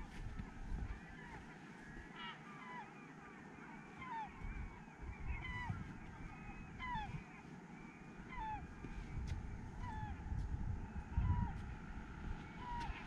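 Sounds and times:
gulls calling: 0.0s - 13.0s
low uneven rumble: 4.4s - 13.0s.

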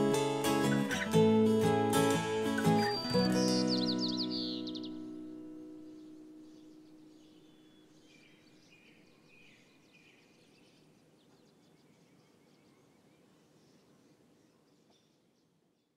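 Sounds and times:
acoustic guitar note: 0.0s - 6.4s
faint outdoor ambience: 0.0s - 15.9s
small birds chirping: 0.0s - 15.9s.

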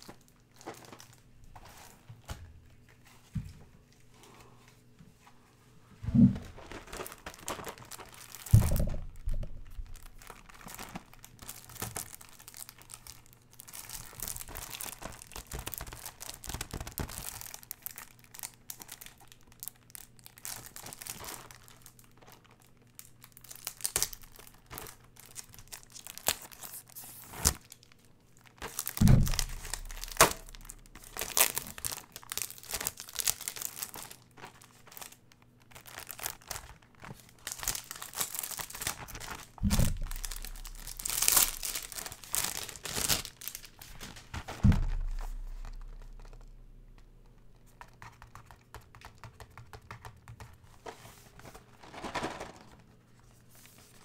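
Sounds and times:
cardboard and wrapping crinkling: 0.0s - 3.3s, 6.4s - 54.0s
heavy low thumps: 8.5s - 10.2s, 29.0s - 31.0s, 39.6s - 41.9s, 44.6s - 47.2s.

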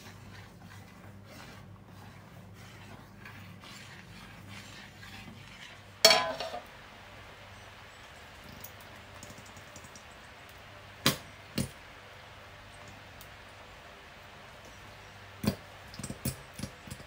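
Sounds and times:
metal spoon stirring in a pot: 0.0s - 6.7s
spoon striking pot with clatter: 6.0s - 6.7s.

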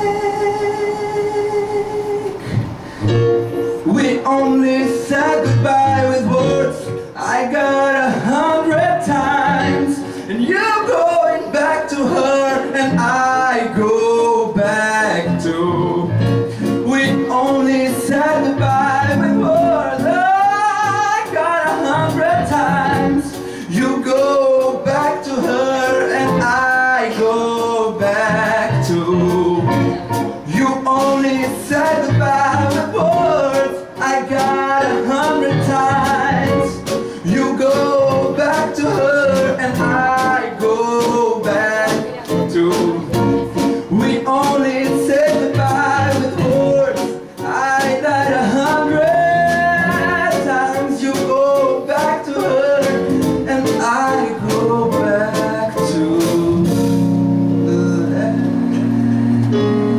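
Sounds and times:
man singing: 0.0s - 2.6s, 3.7s - 59.9s
keyboard: 0.0s - 59.9s
drum kit steady beat: 16.6s - 59.9s.

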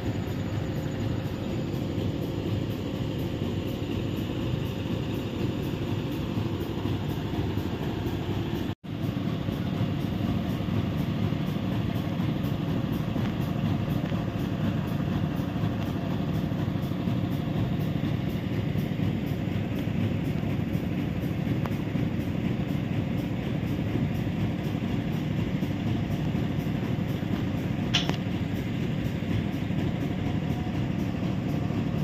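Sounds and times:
diesel engines running: 0.0s - 32.0s.

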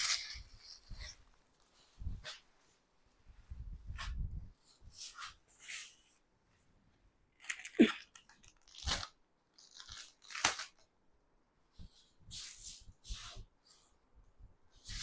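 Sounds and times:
cloth rustling: 0.0s - 6.8s
plastic packets crinkling: 7.4s - 10.8s.

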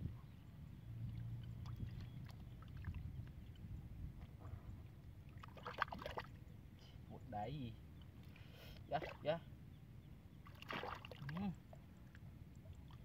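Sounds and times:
low steady rumble: 0.0s - 5.4s
hands sloshing in muddy water: 5.3s - 6.4s, 10.4s - 11.4s.

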